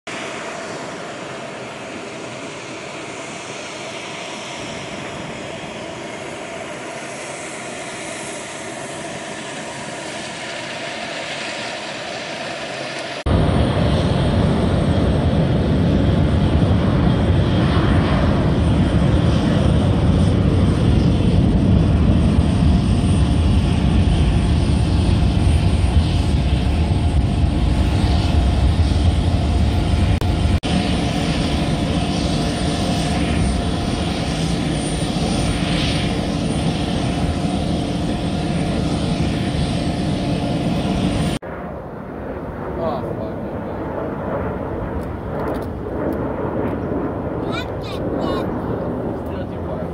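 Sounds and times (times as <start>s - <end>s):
airplane engines roaring: 0.1s - 49.9s.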